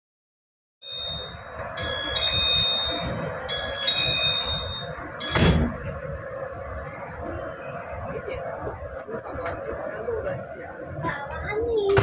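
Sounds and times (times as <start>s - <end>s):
train door warning chime: 0.8s - 5.9s
train carriage hum: 0.8s - 12.0s.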